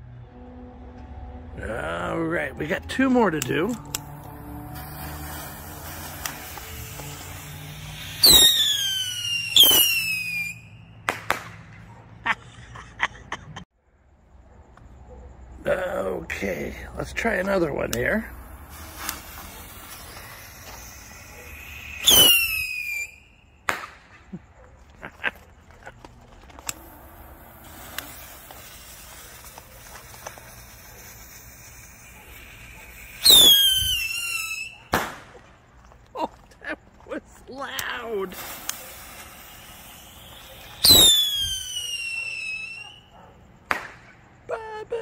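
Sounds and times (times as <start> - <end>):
rockets whistling: 1.7 - 11.8, 17.2 - 24.5, 26.4 - 35.7, 37.6 - 44.5
firework cracks: 3.4 - 11.9, 17.8 - 24.4, 25.1 - 36.0, 37.6 - 44.5.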